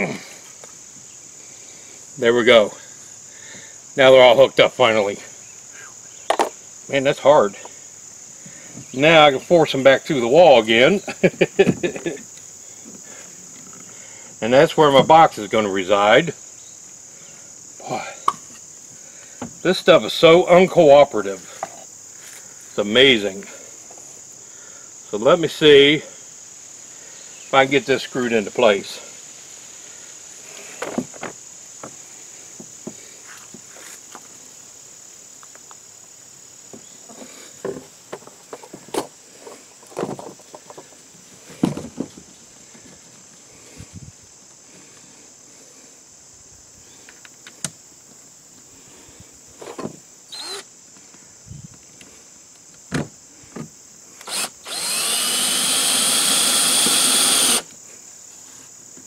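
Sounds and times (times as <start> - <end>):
crickets chirping: 0.0 - 59.0
cordless drill driving screw: 50.3 - 50.7, 54.2 - 57.7.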